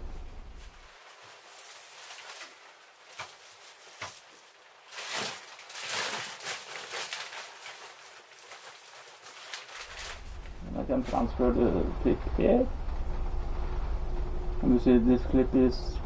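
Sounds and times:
plastic sack rustling: 0.0s - 14.0s
coal into metal scuttle: 1.0s - 10.5s.

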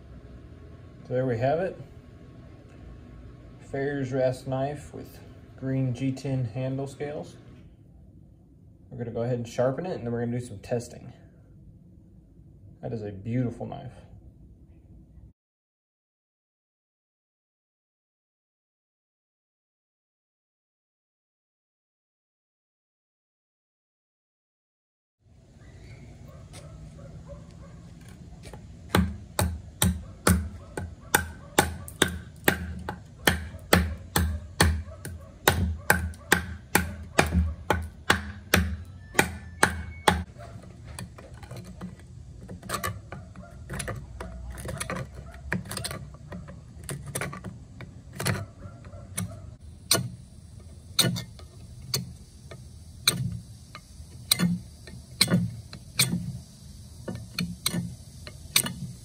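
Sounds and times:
knife chopping into wood: 28.4s - 40.3s.

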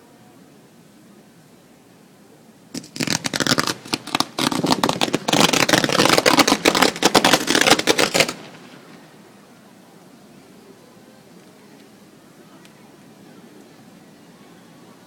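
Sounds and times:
fireworks crackling: 2.8s - 9.4s.

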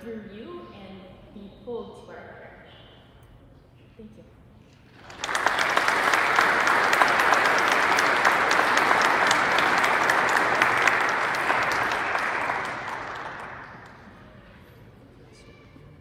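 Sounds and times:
crowd applauding: 4.9s - 14.3s.

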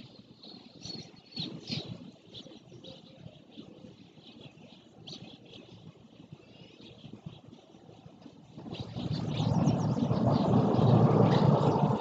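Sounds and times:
small birds chirping: 0.0s - 12.0s
low uneven rumble: 8.4s - 12.0s.

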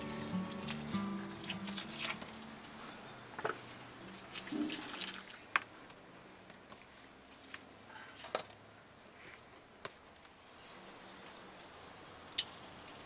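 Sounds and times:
water pouring from watering can: 0.0s - 2.7s, 4.0s - 5.6s.

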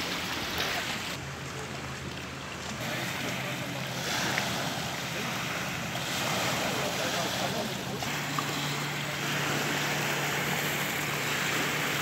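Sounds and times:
lake water: 0.0s - 12.0s
wind: 0.0s - 12.0s.

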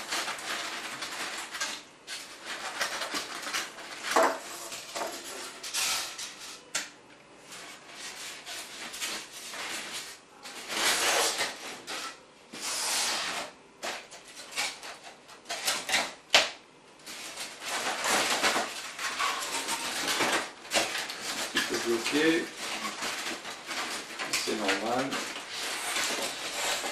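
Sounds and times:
foam rubbing and scraping: 7.5s - 15.2s, 17.1s - 26.9s.

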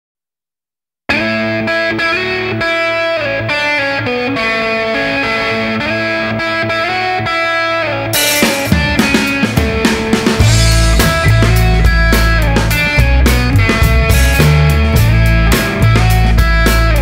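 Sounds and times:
distorted electric guitar: 1.1s - 17.0s
drums with crash cymbal: 8.2s - 17.0s.

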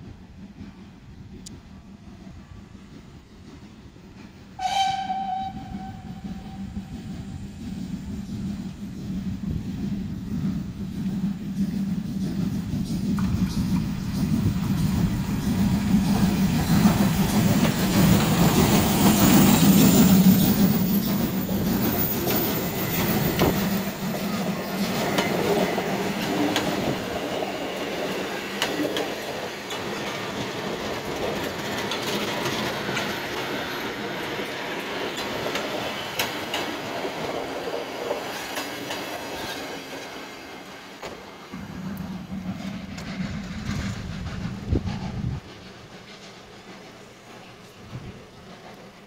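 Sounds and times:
steam locomotive passing: 0.0s - 49.0s
train wheels clicking on rails: 0.0s - 49.0s.

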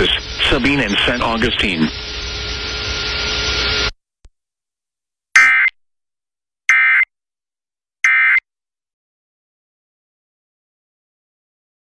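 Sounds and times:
warbling data tone bursts: 0.0s - 3.8s, 5.4s - 5.7s, 6.7s - 7.1s, 8.0s - 8.4s
radio hiss with faint tones: 0.0s - 3.9s.

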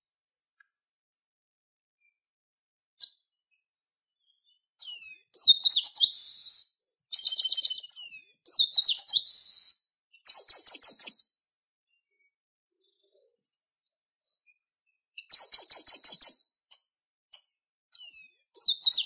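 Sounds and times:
blackbird singing high notes: 4.2s - 11.3s, 15.2s - 16.4s, 18.0s - 19.0s.

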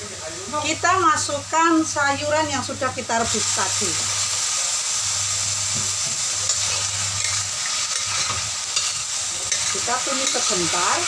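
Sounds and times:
vegetables sizzling in oil: 0.0s - 11.0s
metal spatula scraping wok: 6.5s - 11.0s.

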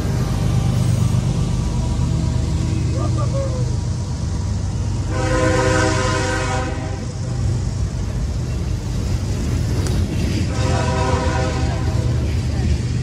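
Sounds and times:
diesel locomotive rumble: 0.0s - 13.0s
train cars rolling on rails: 0.0s - 13.0s
train air horn: 5.0s - 7.4s, 10.5s - 12.2s.

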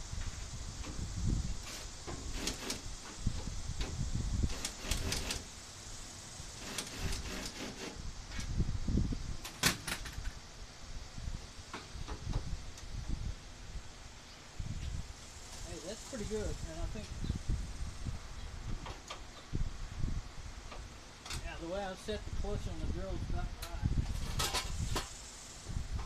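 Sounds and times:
cordless drill driving screws: 1.6s - 2.8s, 4.5s - 5.5s, 6.6s - 8.0s
drill clutch clicking: 1.7s - 2.9s, 4.5s - 5.5s, 6.6s - 8.0s.

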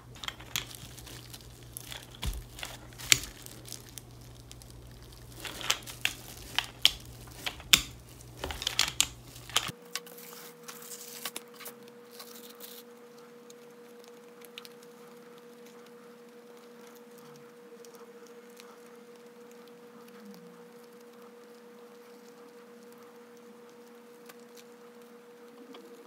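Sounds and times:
plastic film crinkling: 0.0s - 13.0s.

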